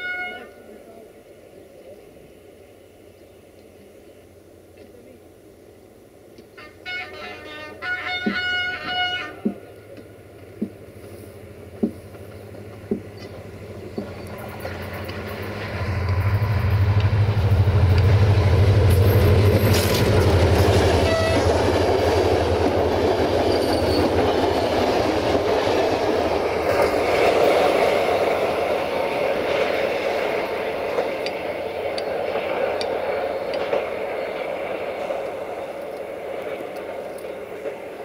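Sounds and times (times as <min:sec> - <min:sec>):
train horn: 0:00.0 - 0:00.8, 0:06.5 - 0:09.6, 0:20.9 - 0:21.7
locomotive hum: 0:00.0 - 0:38.0
train wheels rumbling and clattering: 0:08.0 - 0:38.0.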